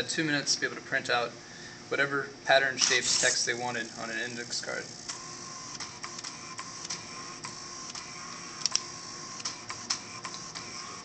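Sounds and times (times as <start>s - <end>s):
sharp plotter clicks: 2.8s - 3.4s, 5.0s - 11.0s
small motors humming: 2.8s - 11.0s.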